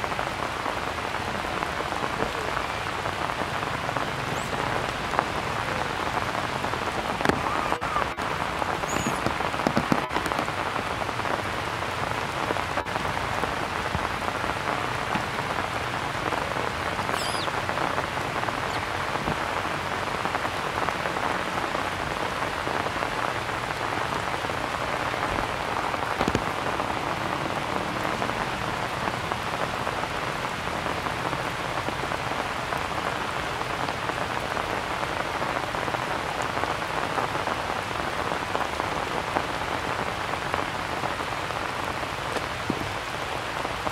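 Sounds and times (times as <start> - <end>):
rain falling on stone and grass: 0.0 - 43.9
faint high-pitched call: 8.8 - 9.3, 17.0 - 17.5.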